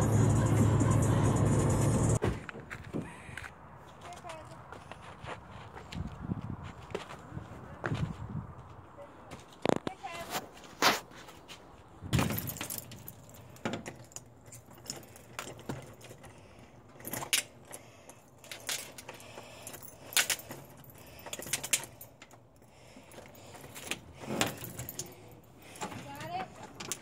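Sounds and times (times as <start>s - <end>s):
keys jangling: 12.2s - 27.0s
key turning in lock: 12.3s - 25.9s.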